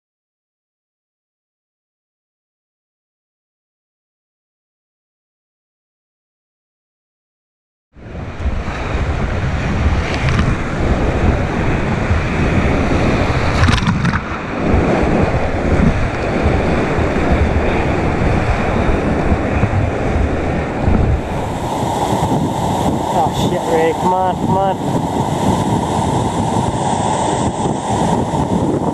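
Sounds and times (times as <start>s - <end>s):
wave splashing over camera: 8.0s - 28.9s
wind on the microphone: 8.0s - 28.9s
rushing whitewater: 8.4s - 28.9s.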